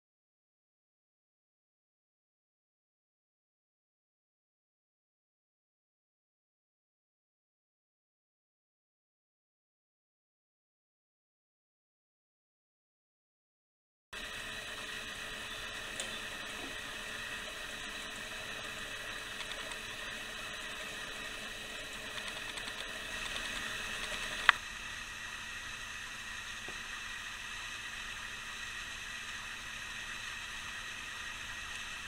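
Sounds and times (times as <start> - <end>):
clockwork gears whirring: 14.2 - 32.0.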